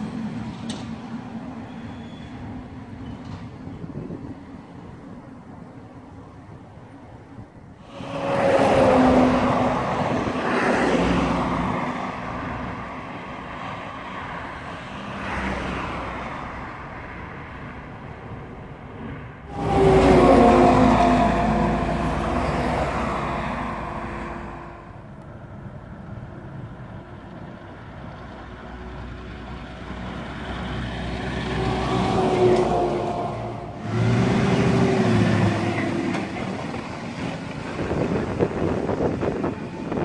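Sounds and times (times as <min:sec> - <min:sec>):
vehicle passing: 0:07.8 - 0:16.6, 0:19.4 - 0:26.0, 0:29.2 - 0:40.0
lorry diesel engine passing: 0:07.8 - 0:40.0.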